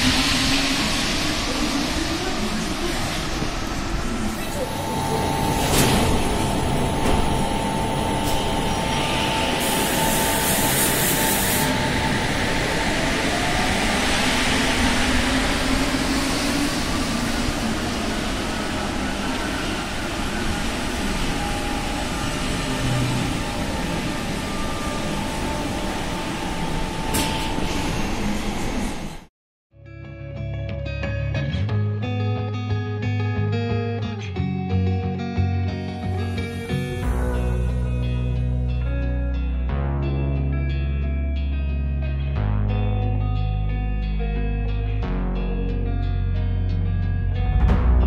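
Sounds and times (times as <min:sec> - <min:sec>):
metro train rumble: 0:00.0 - 0:29.3, 0:35.1 - 0:39.7
motor whine rising in pitch: 0:04.6 - 0:27.6.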